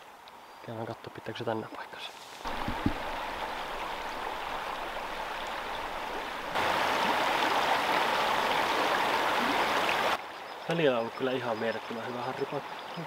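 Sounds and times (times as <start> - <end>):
river water rushing over rapids: 2.4 - 10.2.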